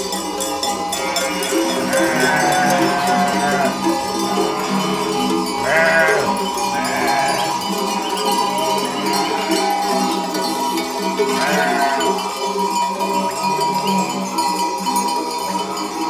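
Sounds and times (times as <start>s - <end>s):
background music with jingling: 0.0s - 16.0s
sheep bleating: 0.8s - 7.7s, 8.7s - 10.0s, 11.2s - 12.3s.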